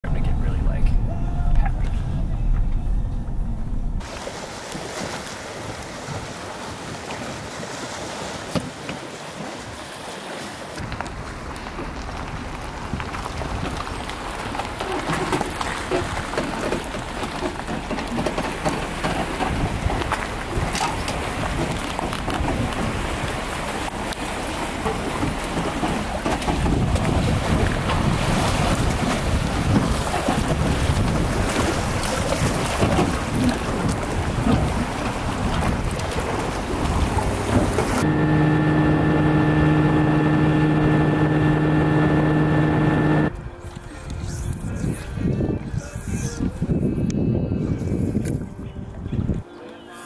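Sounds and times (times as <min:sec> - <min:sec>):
wind: 0:00.0 - 0:50.0
water washing against shore: 0:04.0 - 0:43.3.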